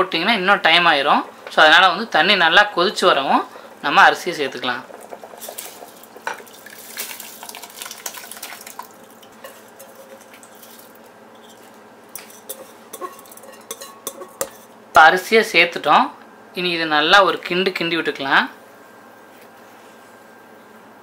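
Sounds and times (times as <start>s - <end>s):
boiling water bubbling: 0.5s - 14.7s
rice grains rattling off bowl: 4.8s - 11.7s
steel bowl clinking against pot: 5.0s - 14.7s.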